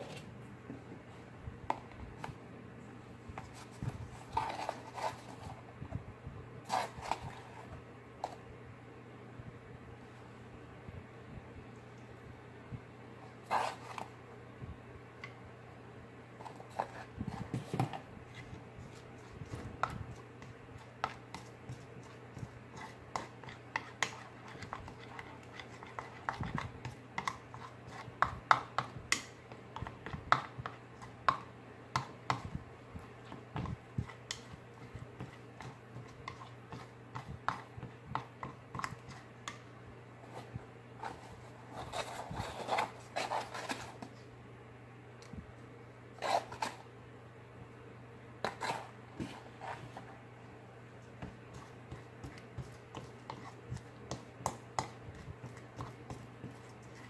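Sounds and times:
steady low hum: 0:00.0 - 0:57.0
plastic spoon tapping a bowl: 0:23.2 - 0:32.5
spoon scraping a bowl: 0:46.2 - 0:46.8, 0:48.4 - 0:50.0.

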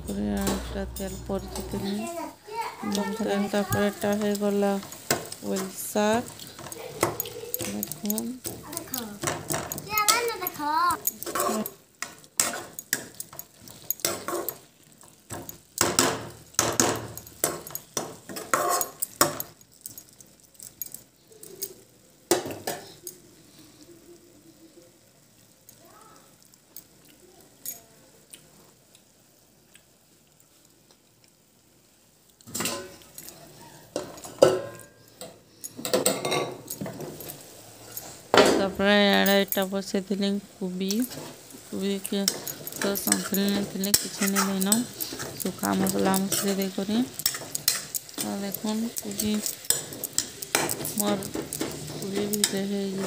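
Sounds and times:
pans clattering on stovetop: 0:09.2 - 0:19.6, 0:22.3 - 0:23.0, 0:32.5 - 0:39.5, 0:41.0 - 0:53.0
metal ladle scraping a pan: 0:11.1 - 0:14.6, 0:18.3 - 0:19.0, 0:41.0 - 0:53.0.

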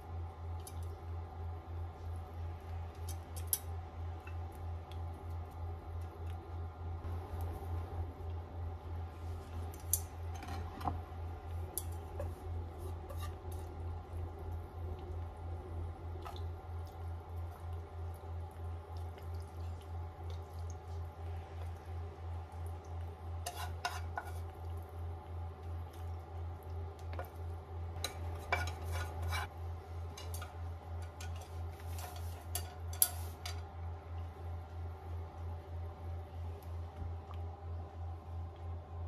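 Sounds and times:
steady low hum: 0:00.0 - 0:39.0
chopsticks scraping metal pan: 0:12.8 - 0:13.7, 0:23.4 - 0:24.5, 0:28.0 - 0:29.5, 0:30.2 - 0:33.6.

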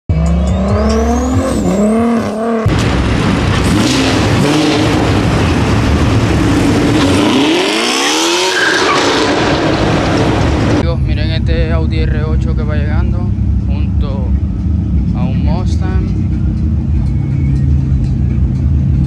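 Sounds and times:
car accelerating: 0:00.1 - 0:11.4
car engine revving: 0:00.1 - 0:19.0.

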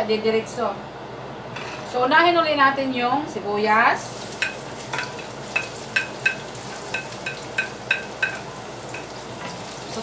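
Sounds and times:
onion sizzling in hot oil: 0:04.0 - 0:10.0
spatula clinking on plate: 0:04.4 - 0:09.6.

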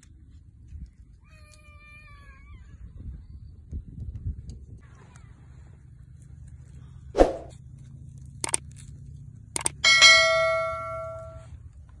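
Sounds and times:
bell ding: 0:09.8 - 0:11.5.

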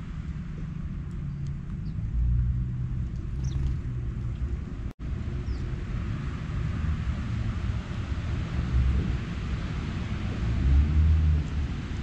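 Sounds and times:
low outdoor rumble: 0:00.0 - 0:12.0
small birds chirping: 0:01.1 - 0:02.1, 0:03.1 - 0:04.5, 0:05.4 - 0:05.7.

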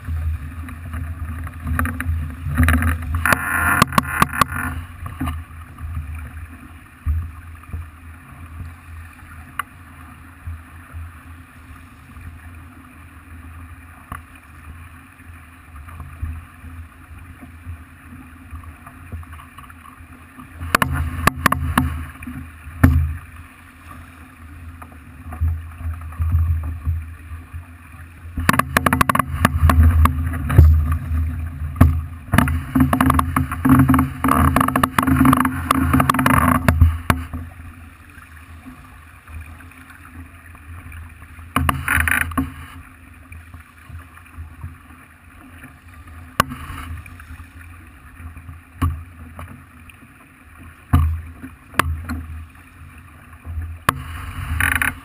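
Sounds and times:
water rushing along yacht hull: 0:00.0 - 0:55.0.

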